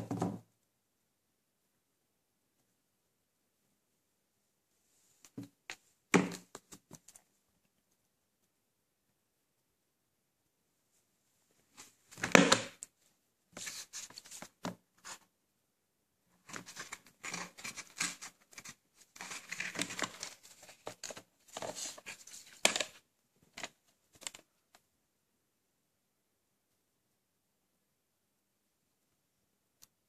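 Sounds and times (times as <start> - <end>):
plastic scraping and rustling: 16.4 - 24.5.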